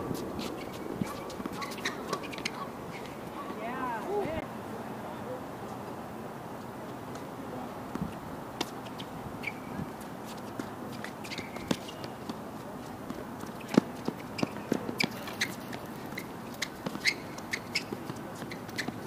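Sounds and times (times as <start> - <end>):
footsteps on court: 0.1 - 4.4, 7.9 - 19.0
shoe squeaks: 0.4 - 3.6, 8.7 - 12.4, 13.4 - 19.0.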